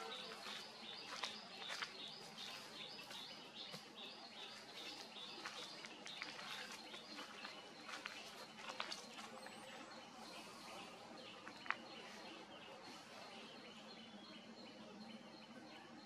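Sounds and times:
bird chirp: 0:00.0 - 0:16.0.

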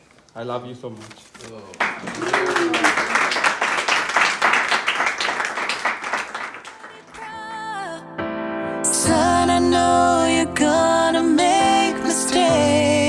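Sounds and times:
crowd applauding: 0:01.8 - 0:07.6
music: 0:06.8 - 0:13.0.

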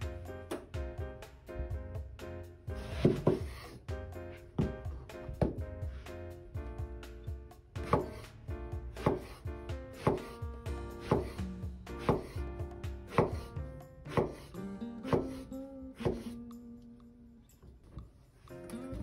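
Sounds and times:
soft background music: 0:00.0 - 0:19.0
knife slicing onto cutting board: 0:12.0 - 0:12.4.

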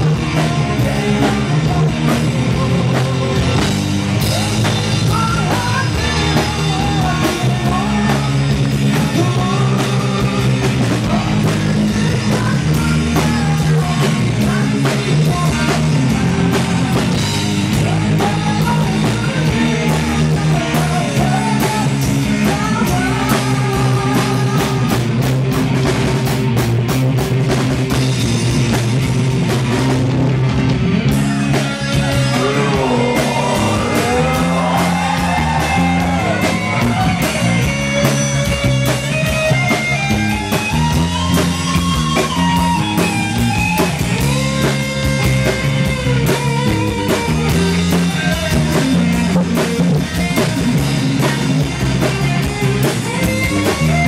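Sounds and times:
man singing: 0:00.0 - 0:25.0, 0:31.8 - 0:38.2, 0:47.3 - 0:51.5
drum kit: 0:00.0 - 0:54.0
electric guitar: 0:00.0 - 0:54.0.

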